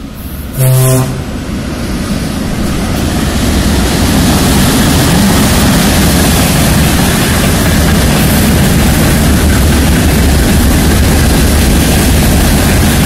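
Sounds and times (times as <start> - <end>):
locomotive running noise: 0.0 - 13.0
train wheels rumbling on rails: 0.0 - 13.0
locomotive horn blast: 0.5 - 1.4.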